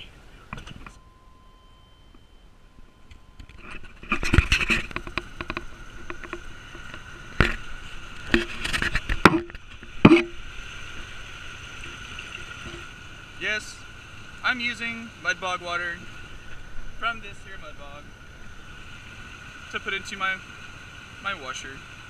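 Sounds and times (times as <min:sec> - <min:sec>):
metal knocks and clanks: 0:03.4 - 0:07.7
water pouring into reservoir: 0:05.5 - 0:13.6.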